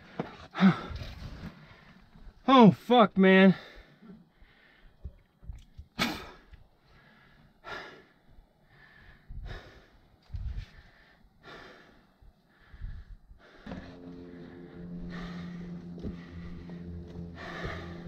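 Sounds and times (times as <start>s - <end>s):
person breathing hard: 3.6s - 5.1s, 6.4s - 18.0s.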